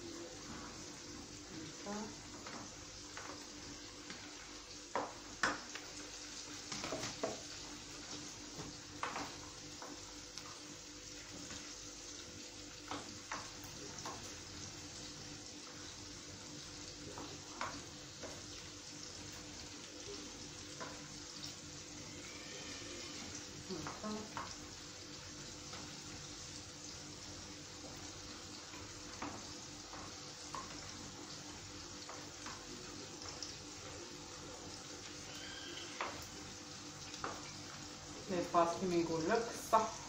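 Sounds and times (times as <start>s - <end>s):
chicken sizzling in a pan: 0.0s - 40.0s.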